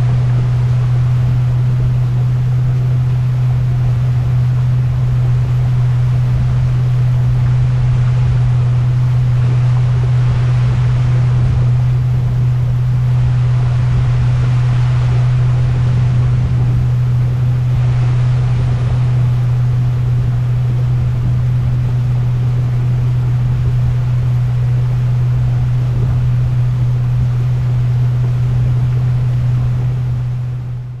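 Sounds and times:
wind and water rushing: 0.0s - 30.6s
boat motor humming: 0.0s - 31.0s.

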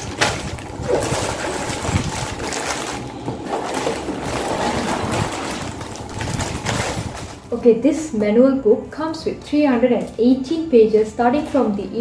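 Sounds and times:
plastic bags rustling: 0.0s - 7.8s.

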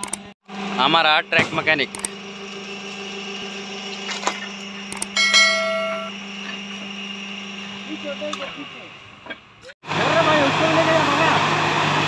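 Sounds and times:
steady low hum: 1.0s - 9.7s
bell-like notification chime: 5.2s - 6.1s.

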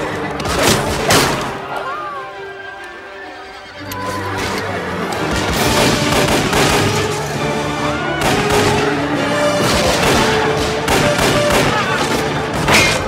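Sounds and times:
film score music: 0.0s - 13.0s
gunshots volley: 0.4s - 1.7s, 5.3s - 7.4s, 8.2s - 13.0s.

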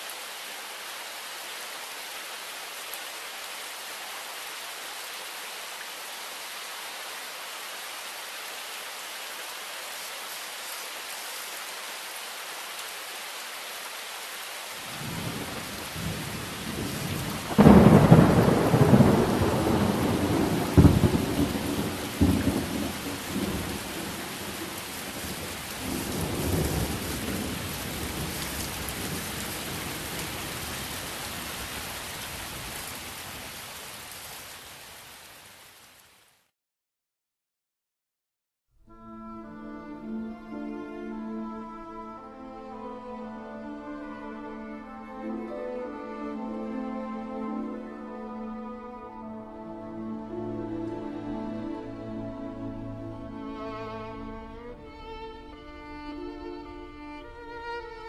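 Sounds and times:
steady rain hiss: 0.0s - 36.5s, 39.4s - 58.0s
thunder rumbling and cracking: 14.9s - 30.7s.

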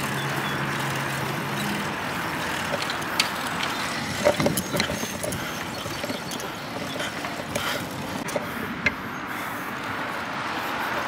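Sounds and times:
bicycle tyres on asphalt: 0.0s - 11.0s.

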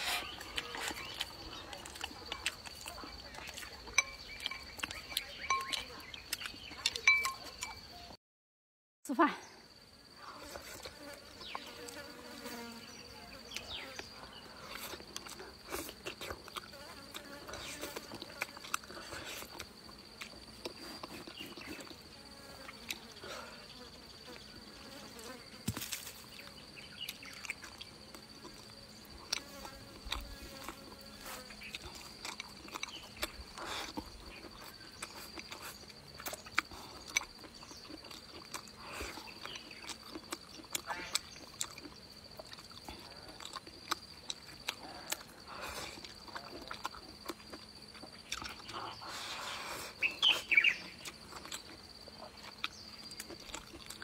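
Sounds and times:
chewing and lip smacks: 0.0s - 7.8s, 14.6s - 23.1s, 27.0s - 49.3s, 50.1s - 54.0s
high drone of insects: 9.1s - 54.0s.

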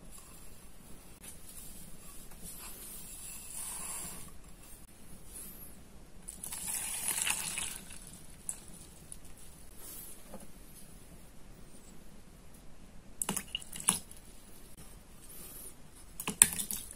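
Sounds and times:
milk splashing into bowl: 6.3s - 8.6s
sugar pouring hiss: 6.3s - 8.7s.

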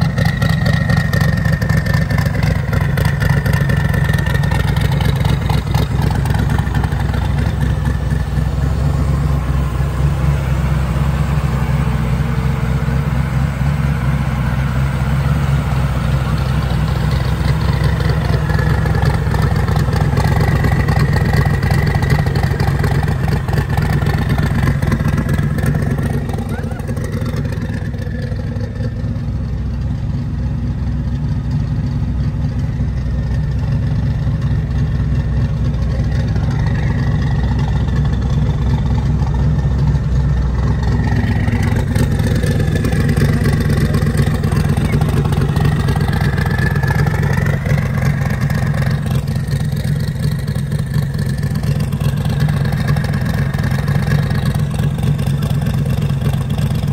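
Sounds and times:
car engine idling: 0.0s - 56.9s.

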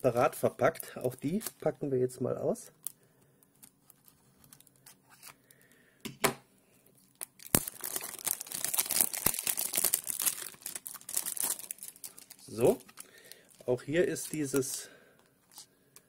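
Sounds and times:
crinkling plastic wrap: 7.0s - 14.9s.

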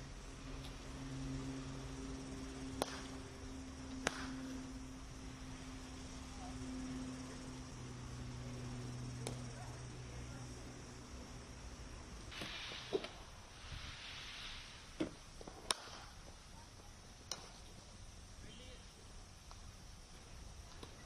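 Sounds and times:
steady low hum: 0.0s - 21.0s
cricket bat striking ball: 2.8s - 3.2s, 4.0s - 4.5s.

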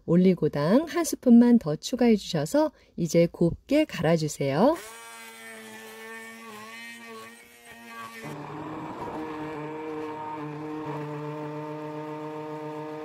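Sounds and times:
immersion blender motor running: 4.8s - 13.0s.

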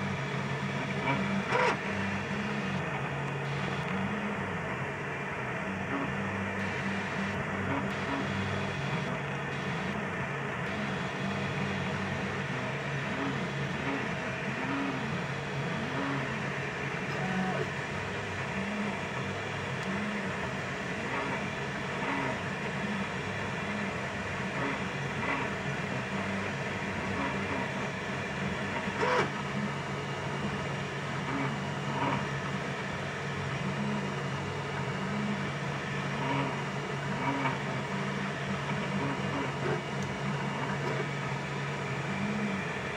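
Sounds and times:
stepper motors whining: 0.0s - 4.6s, 5.8s - 19.0s
printer hum: 0.0s - 42.9s.

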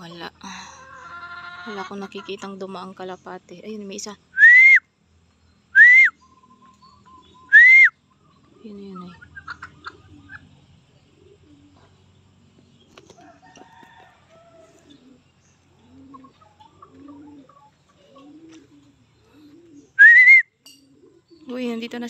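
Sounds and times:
low soft bird calls: 2.2s - 22.0s
loud rising whistle: 5.8s - 6.1s, 7.5s - 7.9s, 20.0s - 20.4s.

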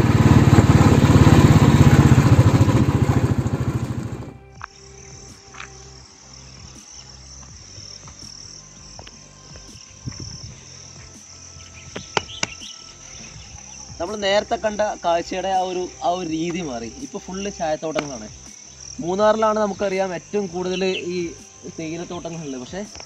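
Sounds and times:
motorcycle engine: 0.0s - 6.8s
high-pitched insect drone: 0.0s - 23.0s
wind noise while riding: 9.5s - 11.2s.

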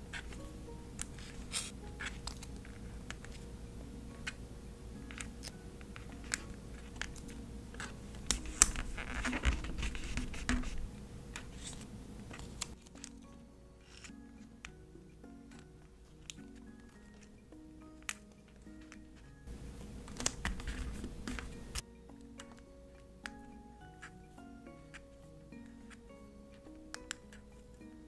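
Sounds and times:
paper rustling: 6.0s - 14.1s, 18.0s - 21.8s
tweezers clicking on stickers: 15.5s - 19.3s, 20.1s - 27.8s.

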